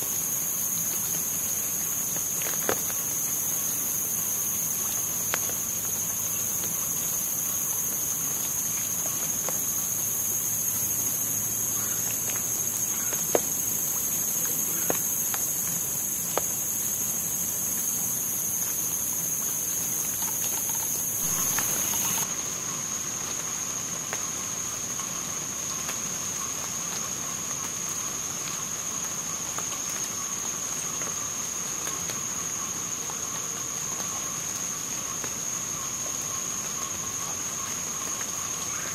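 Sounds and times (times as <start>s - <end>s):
insect chorus: 0.0s - 38.9s
rainwater dripping taps: 0.8s - 3.4s, 4.6s - 17.9s, 18.5s - 22.3s.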